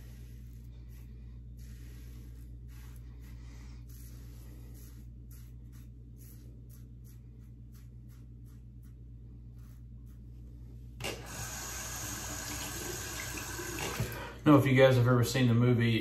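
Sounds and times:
tap water running into sink: 11.0s - 14.3s.

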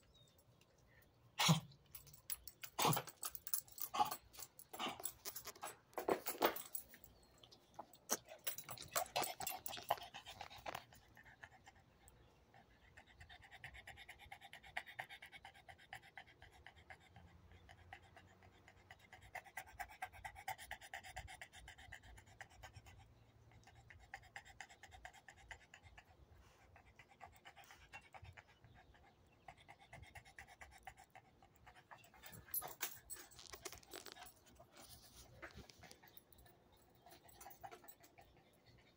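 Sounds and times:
dog panting: 8.4s - 38.9s.

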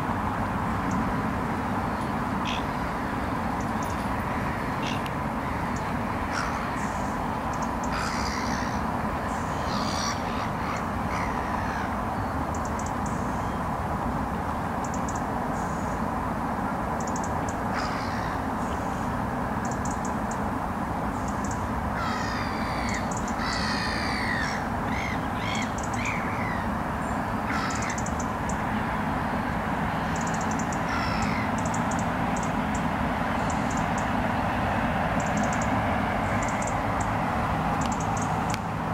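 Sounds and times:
bird calls: 1.9s - 13.6s, 21.2s - 34.2s, 35.2s - 37.2s
rapid high ticks: 37.8s - 38.7s.

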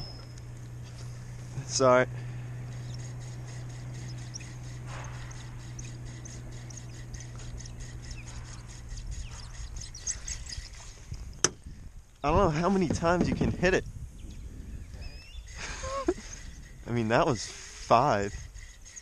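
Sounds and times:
steady low hum: 0.0s - 19.0s
fishing reel ticking: 2.6s - 11.0s, 16.2s - 19.0s.

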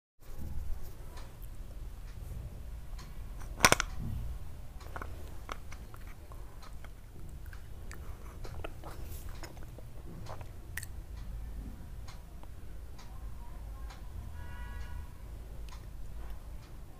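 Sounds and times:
low steady hum: 0.2s - 16.9s
small clicks and crackles: 4.8s - 11.3s.

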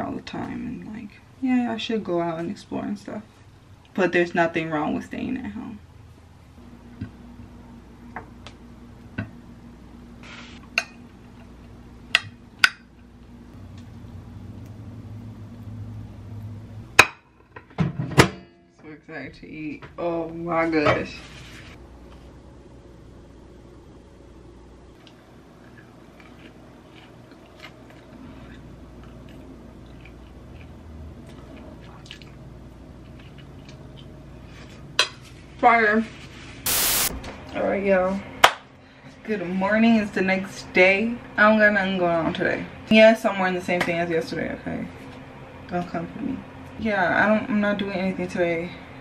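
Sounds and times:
low steady hum: 0.0s - 49.0s
wet chewing mouth clicks: 25.0s - 32.4s
brief hiss: 36.6s - 37.2s.

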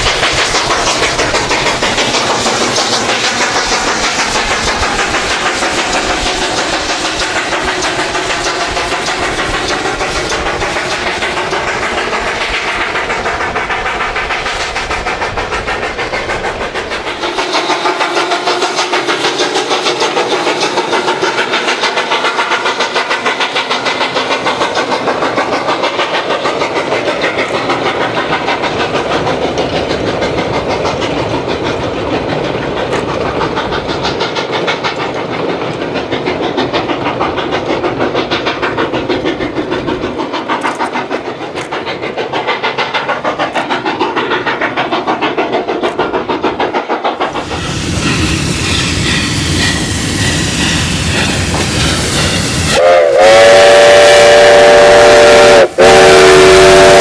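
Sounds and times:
wheels clattering over rail joints: 0.0s - 52.7s
steam locomotive exhaust: 0.0s - 57.0s
steam whistle: 52.6s - 57.0s.

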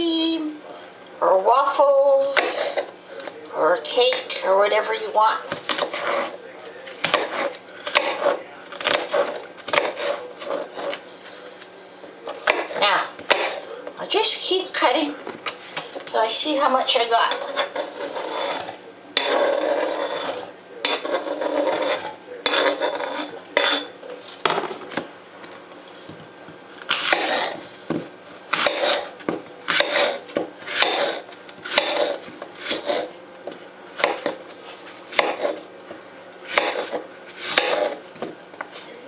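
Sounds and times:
knife chopping on cutting board: 5.5s - 6.3s, 7.0s - 11.0s, 12.4s - 13.6s, 17.3s - 25.1s, 26.9s - 33.1s, 34.0s - 34.4s, 35.1s - 35.6s, 36.5s - 38.4s
knife scraping fruit off board: 5.5s - 6.4s, 7.0s - 11.4s, 12.4s - 13.6s, 17.3s - 25.1s, 26.8s - 33.2s, 34.0s - 35.7s, 36.5s - 38.3s.

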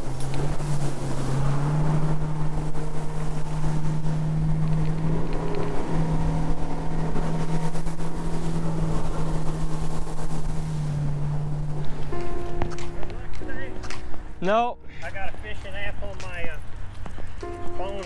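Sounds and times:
boat engine running at high speed: 0.0s - 13.5s
water rushing along hull: 0.0s - 14.5s.

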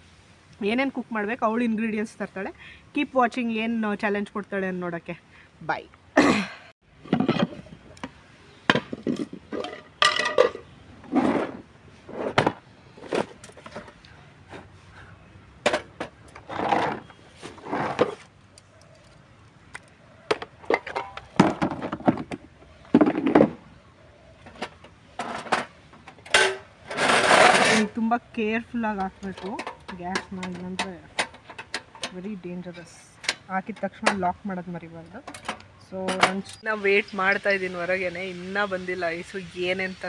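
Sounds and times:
camping stove clattering: 8.7s - 10.7s, 20.3s - 22.4s, 24.4s - 27.9s, 28.9s - 34.4s, 35.2s - 36.6s.

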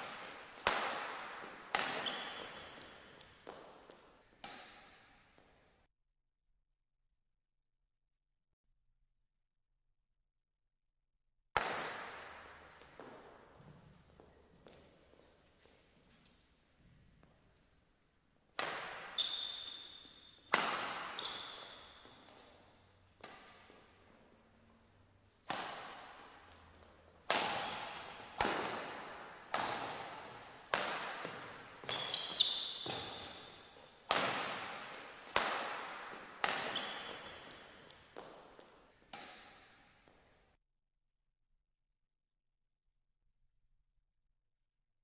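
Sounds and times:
shoe squeaks on court floor: 0.0s - 5.2s, 11.6s - 16.4s, 18.8s - 24.0s, 25.8s - 39.9s
rackets hitting shuttlecock: 0.0s - 5.6s, 11.6s - 14.8s, 18.5s - 40.3s.

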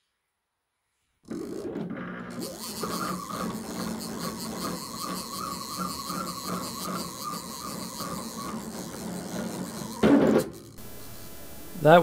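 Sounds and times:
machine whine warbling: 10.8s - 12.0s.

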